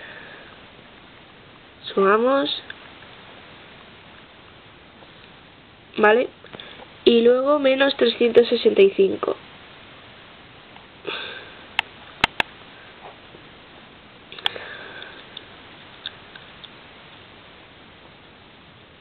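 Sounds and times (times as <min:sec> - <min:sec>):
sharp clicks: 0:11.8 - 0:12.5.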